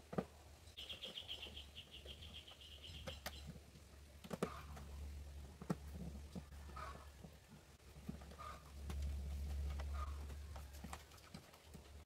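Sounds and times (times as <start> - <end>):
bird chirping trill: 0.7 - 3.5.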